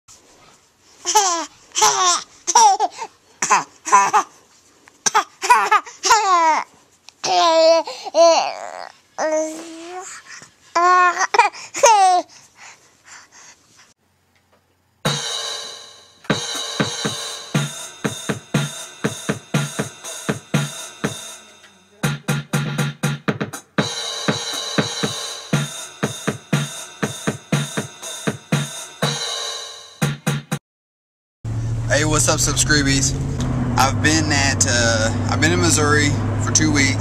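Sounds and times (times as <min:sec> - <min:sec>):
baby laughing and squealing: 0:01.0 - 0:04.4, 0:05.0 - 0:10.2, 0:10.8 - 0:12.3
drum-backed intro music: 0:15.1 - 0:30.6.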